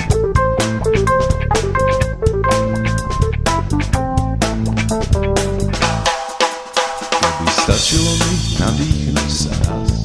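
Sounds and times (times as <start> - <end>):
held electric guitar notes: 0.0 - 6.2
drum kit beats: 0.0 - 10.0.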